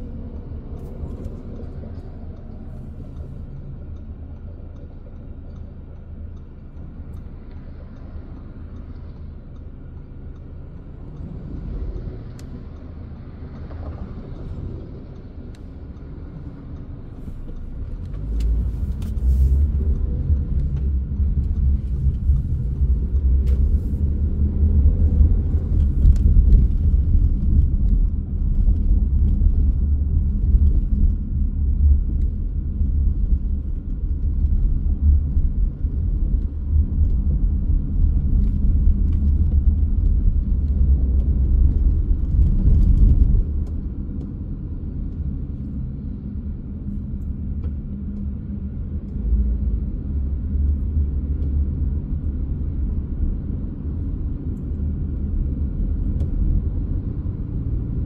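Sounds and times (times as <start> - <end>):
car interior road and engine noise: 0.0 - 58.0.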